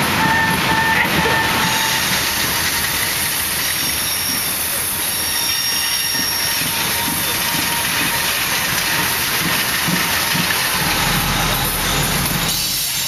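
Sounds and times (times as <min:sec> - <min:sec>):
train wheels rumbling on rail: 0:00.0 - 0:13.0
thin wheel squeal: 0:03.8 - 0:08.3.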